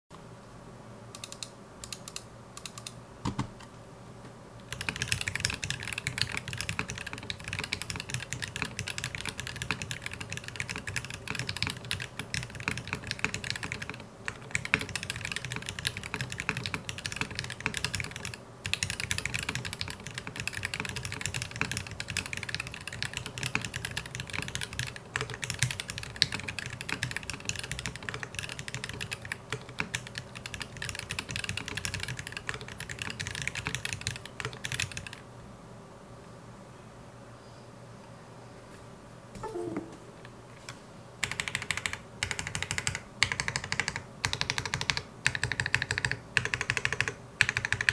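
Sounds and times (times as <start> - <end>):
typing on mechanical keyboard: 4.7 - 35.2, 41.2 - 47.9.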